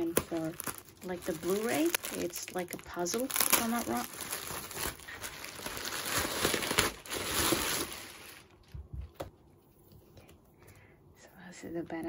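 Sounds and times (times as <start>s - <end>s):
bubble wrap crinkling: 0.0s - 8.8s.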